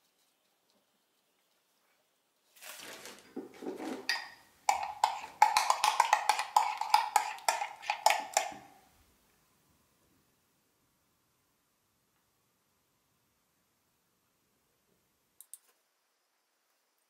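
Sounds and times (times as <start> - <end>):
spoon scraping in a mug: 3.8 - 8.8
spoon knocking on a mug: 4.1 - 8.8.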